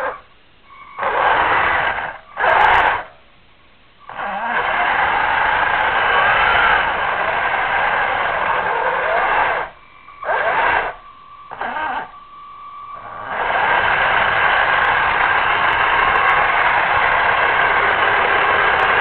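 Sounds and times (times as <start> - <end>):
faint whine: 0.0 - 19.0
radio static hiss and crackle: 0.0 - 19.0
thin steady tone: 10.8 - 16.2.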